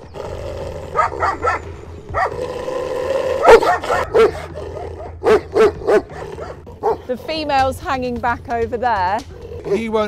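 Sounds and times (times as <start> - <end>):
dog barking: 1.0 - 1.6, 2.2 - 2.4, 3.4 - 7.1.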